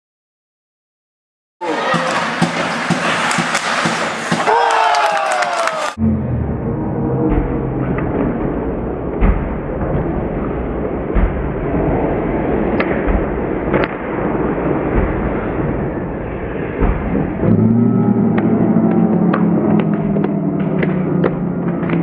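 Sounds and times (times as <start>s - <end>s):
hockey puck and stick clacks: 1.6s - 5.9s, 9.1s - 15.8s, 18.3s - 22.0s
arena hubbub: 1.6s - 6.0s, 17.4s - 22.0s.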